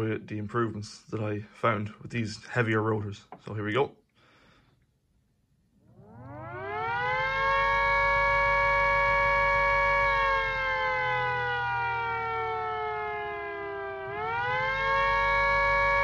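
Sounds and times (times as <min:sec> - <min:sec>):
air raid siren winding: 0:05.8 - 0:16.0.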